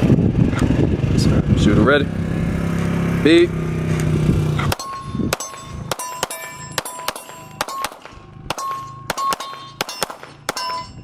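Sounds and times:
pistol shots: 4.6 - 10.9
steel targets clanging: 4.6 - 11.0.

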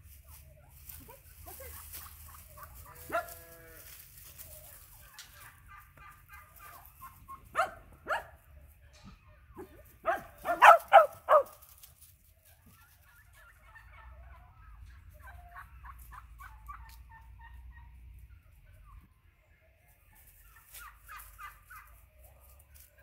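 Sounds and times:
small dog barking: 3.1 - 3.4, 7.5 - 8.4, 9.6 - 11.6.

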